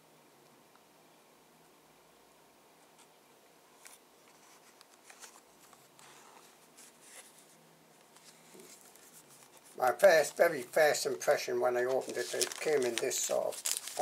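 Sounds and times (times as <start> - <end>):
plastic blister pack crinkling: 8.2 - 14.0.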